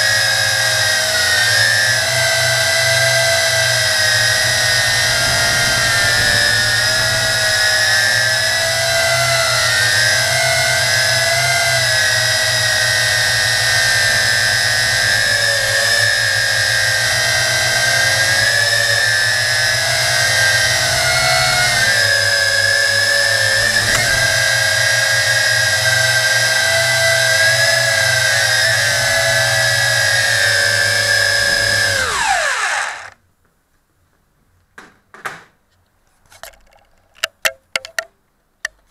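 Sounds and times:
drone motors whining: 0:00.0 - 0:33.2.

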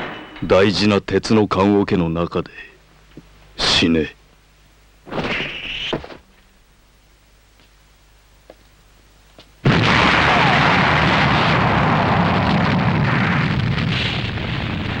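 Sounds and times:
tank explosion blast: 0:09.6 - 0:15.0.

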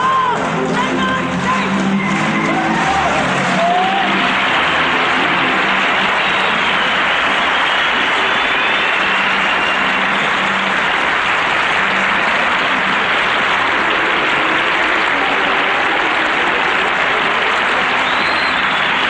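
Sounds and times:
audience applauding and cheering: 0:00.0 - 0:19.0
whistle from crowd: 0:06.0 - 0:10.5, 0:17.9 - 0:19.0.

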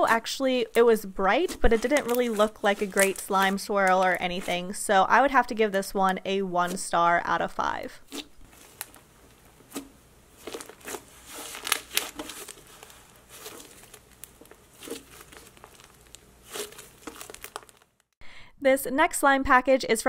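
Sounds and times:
slime crackling and popping: 0:00.7 - 0:04.5, 0:08.4 - 0:18.1.

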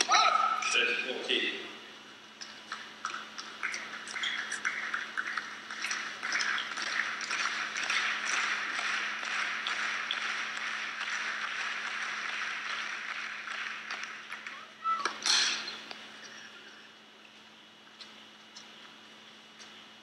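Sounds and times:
crowd applauding: 0:03.5 - 0:15.0.

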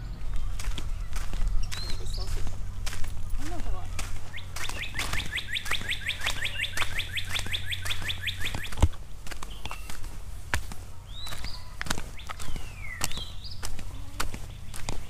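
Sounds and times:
footsteps on dirt trail: 0:00.0 - 0:15.0
songbird trilling: 0:04.2 - 0:10.0, 0:11.1 - 0:15.0.

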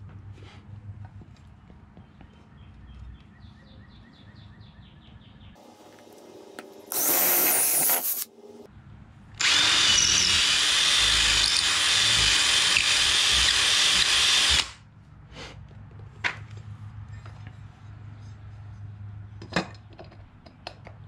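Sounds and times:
cordless drill boring holes: 0:06.9 - 0:08.2, 0:09.4 - 0:14.8.

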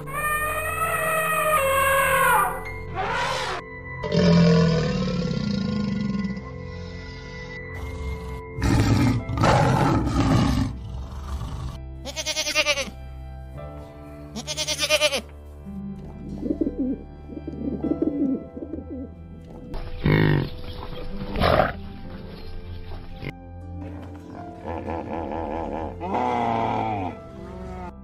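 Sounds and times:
background music: 0:00.0 - 0:28.0
tiger growling roar: 0:04.0 - 0:06.5, 0:07.8 - 0:11.8
pigeons cooing: 0:16.3 - 0:19.1.

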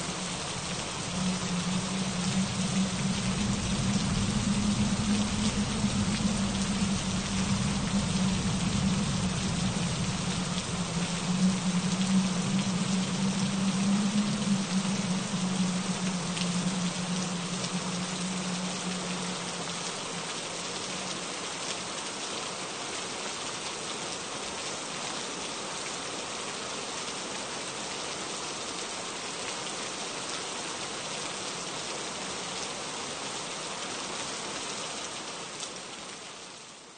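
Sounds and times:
low rumble: 0:00.0 - 0:21.4
steady rain: 0:00.0 - 0:36.9.

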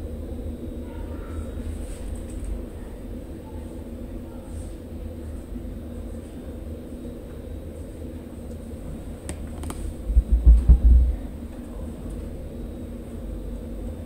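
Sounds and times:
low indoor hum: 0:00.0 - 0:14.0
deep low thumps: 0:10.0 - 0:11.3.

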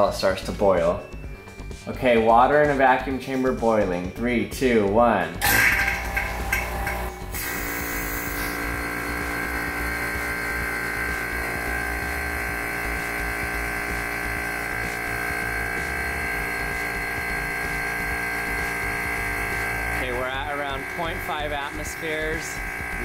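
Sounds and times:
vacuum pump motor humming: 0:05.4 - 0:23.0
high hiss: 0:07.3 - 0:08.7.

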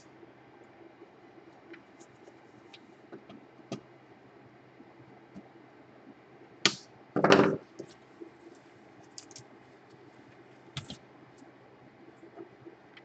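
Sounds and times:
laptop clicks: 0:10.8 - 0:11.0.

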